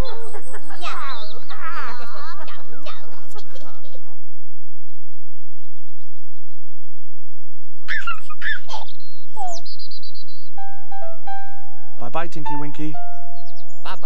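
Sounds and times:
baby giggling: 0.0 - 4.2
faint birdsong: 0.0 - 11.2, 12.4 - 14.0.

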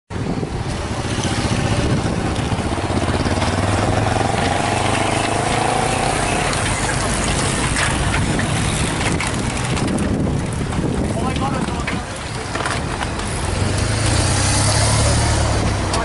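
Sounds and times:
bicycles rolling past: 0.3 - 16.0
motorcycle passing by: 0.7 - 9.6, 13.5 - 16.0
scattered clicks: 2.3 - 14.2.

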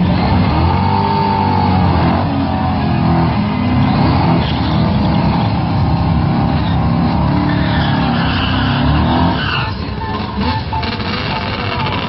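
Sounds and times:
drag racing engines revving: 0.0 - 12.0
tyres spinning in burnout: 0.0 - 12.0.

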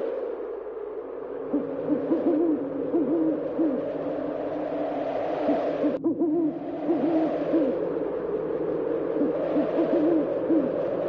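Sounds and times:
owl hooting: 1.4 - 3.9, 5.4 - 7.9, 9.2 - 10.8.

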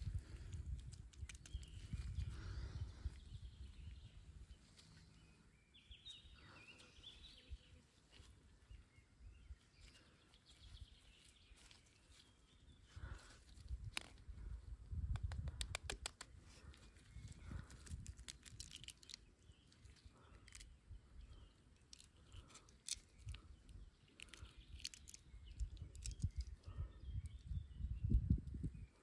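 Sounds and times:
egg shell cracking clicks: 0.8 - 1.7, 17.9 - 19.2, 24.2 - 26.5
faint bird chirps: 1.4 - 13.4.

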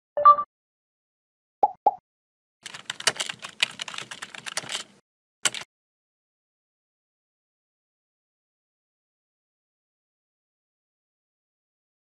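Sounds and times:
computer keyboard typing: 2.6 - 5.7.

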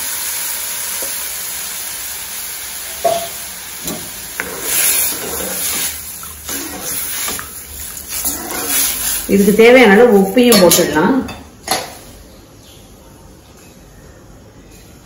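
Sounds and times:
liquid sizzling in hot oil: 0.0 - 9.7
ladle stirring in pan: 3.1 - 9.5.

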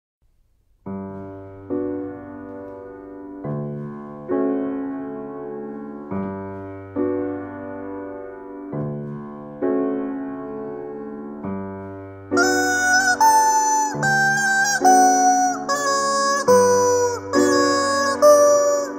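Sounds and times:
grand piano accompaniment: 0.6 - 18.9
rubber chicken squawk: 12.4 - 18.9.

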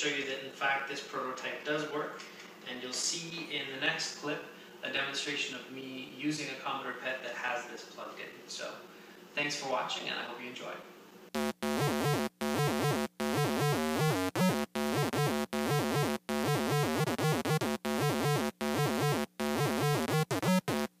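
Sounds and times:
buzzy electronic melody: 11.4 - 21.0.

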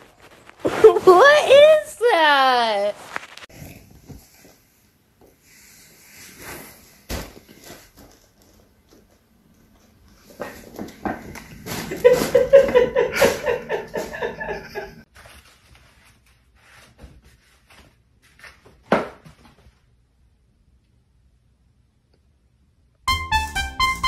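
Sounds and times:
person laughing hard: 11.9 - 15.0.

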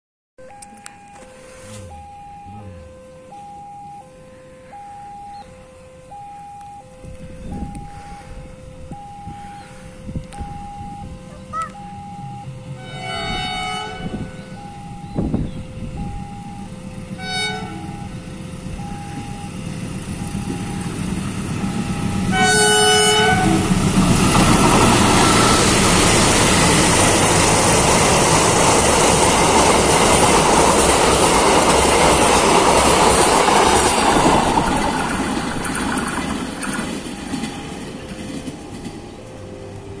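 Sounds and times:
locomotive horn: 11.2 - 16.3, 17.1 - 18.3, 21.6 - 23.8
train wheels on rails: 11.7 - 40.0.

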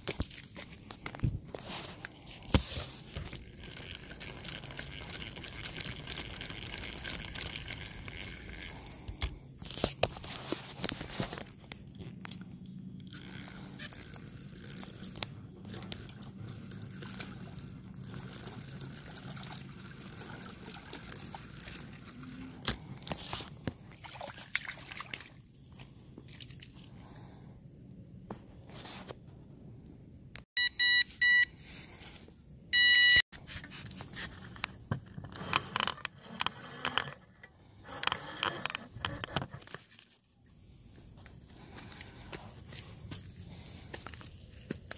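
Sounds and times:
water splashing and sloshing: 0.0 - 11.6, 13.2 - 27.2.

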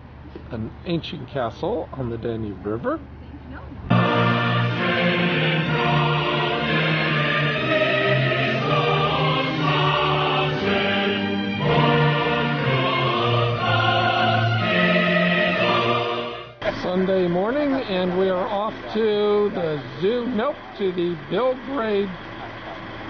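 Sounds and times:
choir singing held chords: 3.9 - 16.7.

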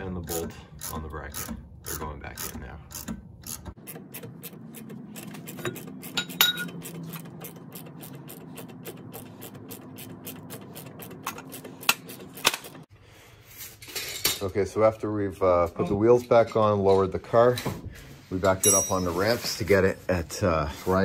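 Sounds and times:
ratchet wrench clicking: 0.8 - 12.6
metallic clink: 5.6 - 6.8, 18.6 - 19.1.

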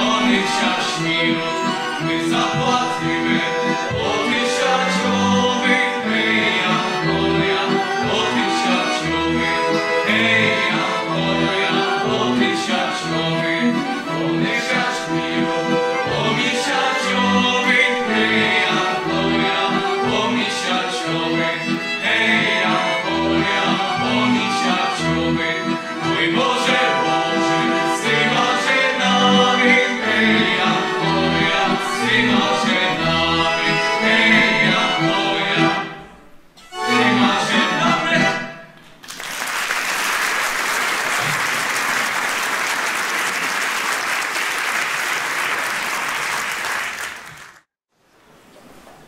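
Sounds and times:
men singing in harmony: 0.0 - 36.0, 36.8 - 38.4
accordion: 0.0 - 38.9
audience applause: 39.0 - 47.7.

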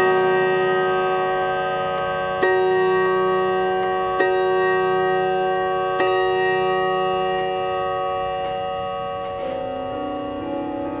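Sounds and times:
clock chime rod strike: 0.0 - 11.0
clock ticking: 0.0 - 11.0.

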